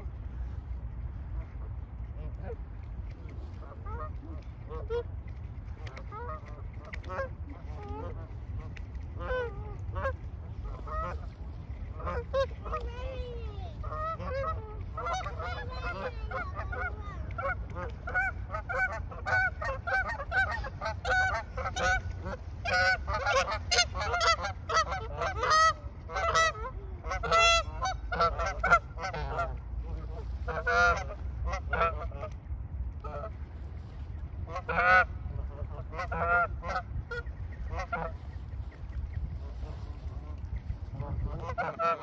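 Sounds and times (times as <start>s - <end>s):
geese honking: 5.9s - 13.2s, 13.8s - 32.3s, 34.5s - 38.2s, 40.9s - 42.0s.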